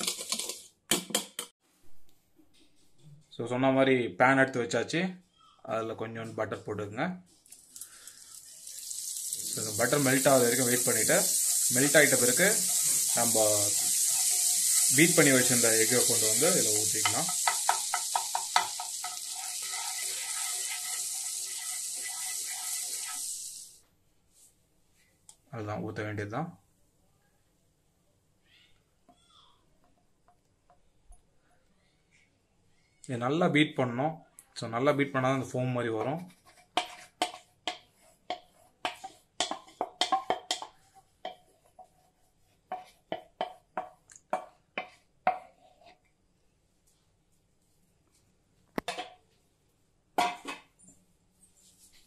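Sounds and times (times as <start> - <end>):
wooden spatula stirring: 0.0 - 0.7, 7.3 - 24.5, 36.0 - 46.2
butter sizzling in a frying pan: 7.6 - 23.8
utensil tapping against bowl: 17.0 - 20.6, 36.8 - 42.0, 42.7 - 45.5.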